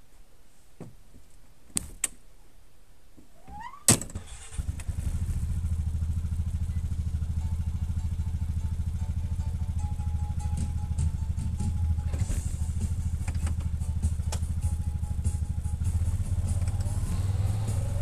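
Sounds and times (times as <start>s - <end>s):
electric starter cranking: 4.1s - 5.4s
engine idling: 4.2s - 18.0s.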